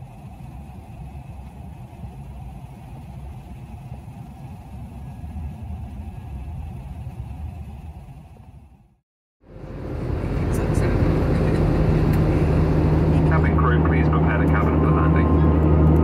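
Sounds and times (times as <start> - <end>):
distant road traffic rumble: 0.0 - 16.0.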